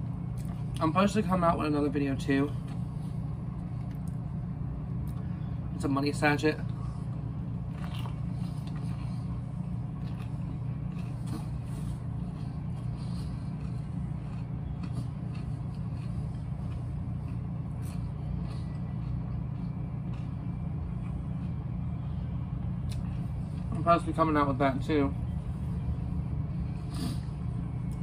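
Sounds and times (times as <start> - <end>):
low machine hum: 0.0 - 28.0
person chewing: 6.7 - 21.8, 22.8 - 23.8, 26.6 - 28.0.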